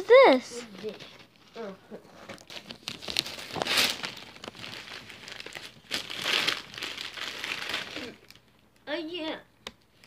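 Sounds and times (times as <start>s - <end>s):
wrapping paper crinkling: 2.4s - 8.7s.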